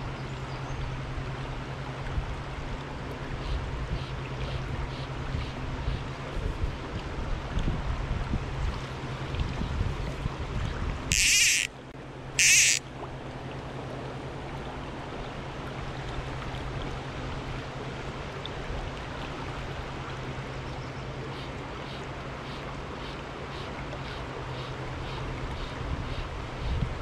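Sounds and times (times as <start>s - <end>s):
river water flowing: 0.0s - 27.0s
wind buffeting microphone: 4.6s - 11.2s, 25.8s - 27.0s
loud rasping bursts: 11.1s - 11.7s, 12.4s - 12.8s.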